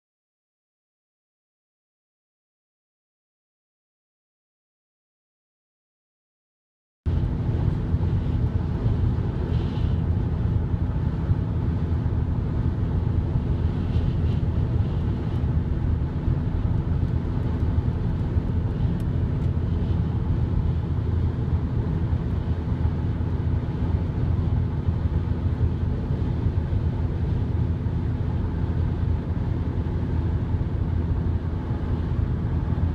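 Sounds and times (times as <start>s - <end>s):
car road and engine rumble: 7.1s - 32.9s.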